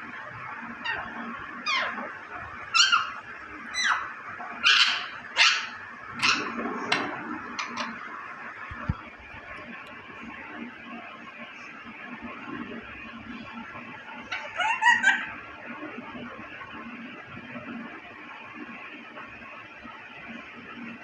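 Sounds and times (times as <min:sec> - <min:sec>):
parakeet shrill calls: 0:00.8 - 0:02.0, 0:02.7 - 0:06.5, 0:14.3 - 0:15.4.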